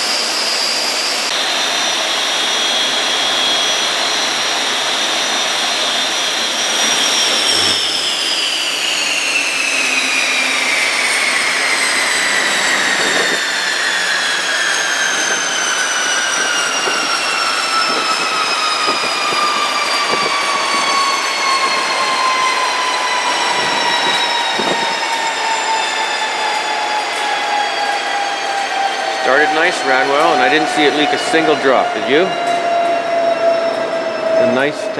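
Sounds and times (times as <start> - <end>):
gas turbine whine winding down: 0.0 - 34.9
rush of air: 6.7 - 8.4.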